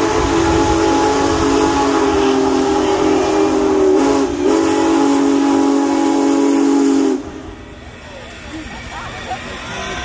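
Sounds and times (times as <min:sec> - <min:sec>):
steam locomotive whistle chord: 0:00.0 - 0:07.6.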